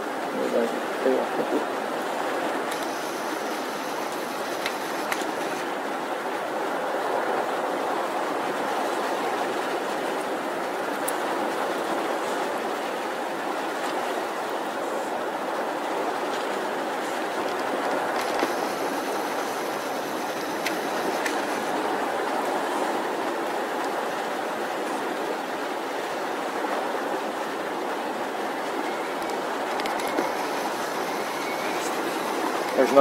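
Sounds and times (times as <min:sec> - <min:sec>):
surf breaking on a beach: 0:00.0 - 0:33.0
faint clicks: 0:04.1 - 0:05.6.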